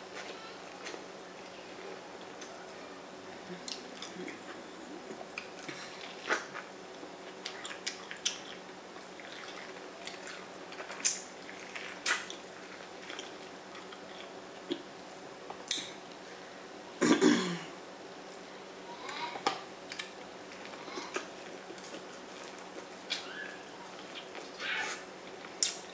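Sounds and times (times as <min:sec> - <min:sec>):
person chewing corn: 0:03.6 - 0:15.8, 0:19.8 - 0:23.3, 0:23.9 - 0:25.9.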